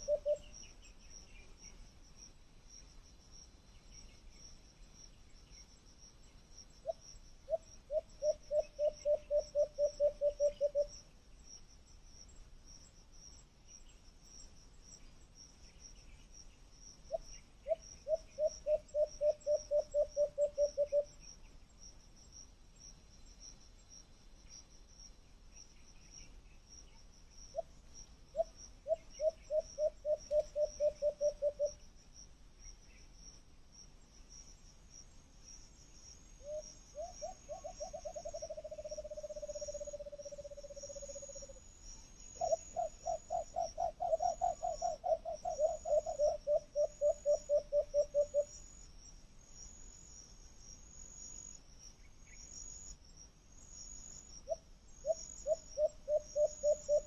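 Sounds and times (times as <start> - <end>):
insects chirping: 0.0 - 57.0.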